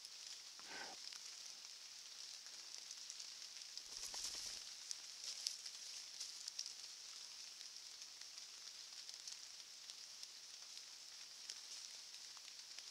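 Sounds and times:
faint ticks: 0:00.0 - 0:12.9.

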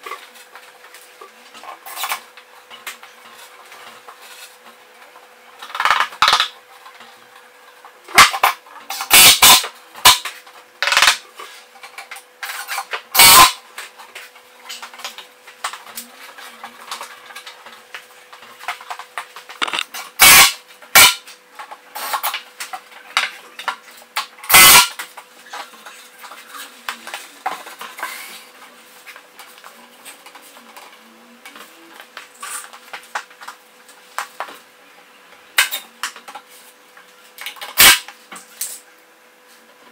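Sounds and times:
faint steady hum: 0:00.0 - 0:39.9
boards knocking and clattering: 0:18.7 - 0:21.2.

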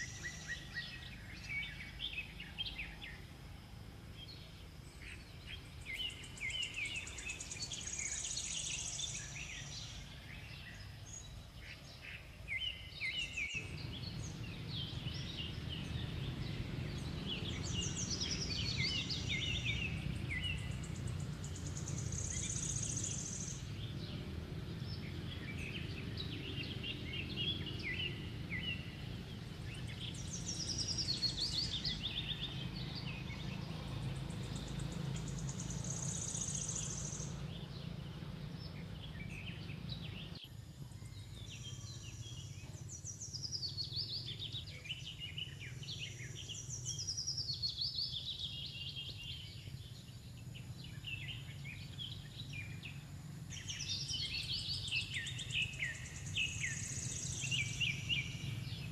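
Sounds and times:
birds chirping: 0:00.0 - 0:58.9
low background rumble: 0:13.2 - 0:47.3.

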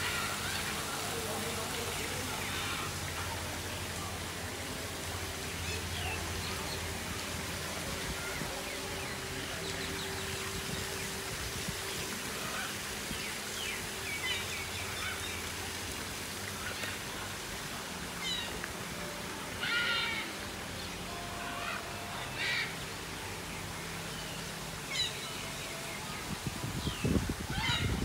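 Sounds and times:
birds calling: 0:24.2 - 0:28.0.

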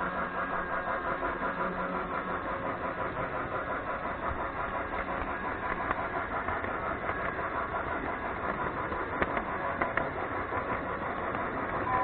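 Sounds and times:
toy train motor whirring: 0:03.1 - 0:12.0.

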